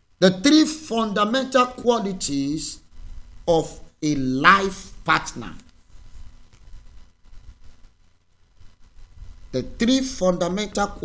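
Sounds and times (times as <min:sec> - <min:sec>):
faint thin hum: 0:00.0 - 0:11.0
spoken phrases: 0:00.2 - 0:02.8, 0:03.5 - 0:05.7, 0:09.6 - 0:11.0.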